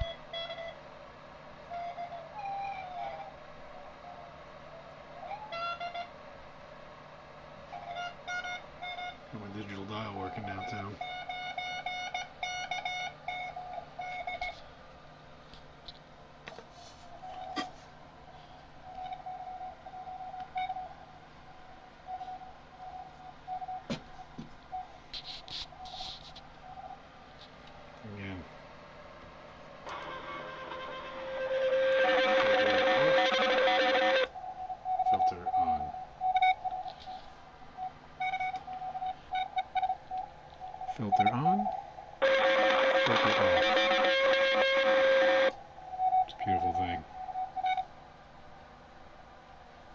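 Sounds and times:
morse code beeps: 0:00.0 - 0:00.8, 0:07.7 - 0:14.6, 0:18.8 - 0:20.9, 0:22.0 - 0:27.0, 0:29.9 - 0:47.9
faint radio hiss: 0:00.0 - 0:11.2, 0:12.9 - 0:39.4, 0:40.2 - 0:49.9.

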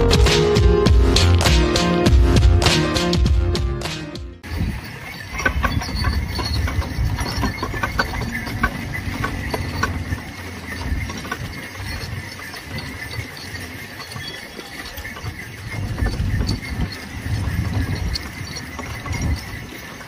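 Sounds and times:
cart wheels rumbling: 0:04.4 - 0:20.0
hooves clopping on road: 0:04.4 - 0:20.0.

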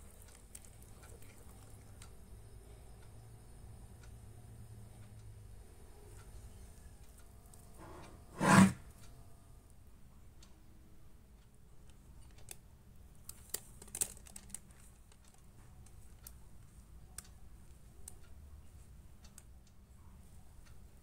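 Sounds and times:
plastic bag crinkling: 0:13.4 - 0:15.1.

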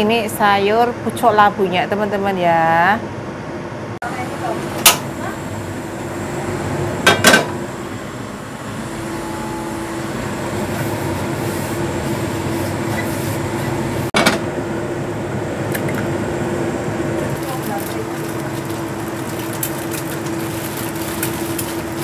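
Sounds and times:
gas stove burner rumbling: 0:04.2 - 0:14.6.

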